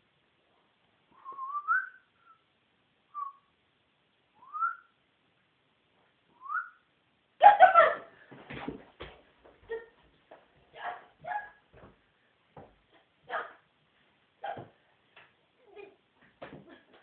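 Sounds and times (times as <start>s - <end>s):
short rising whistles: 1.1s - 2.5s, 4.4s - 5.0s, 6.4s - 6.8s.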